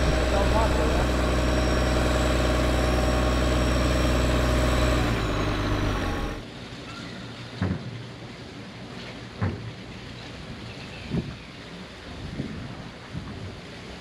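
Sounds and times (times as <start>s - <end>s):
tractor diesel engine rumbling: 0.0s - 6.4s.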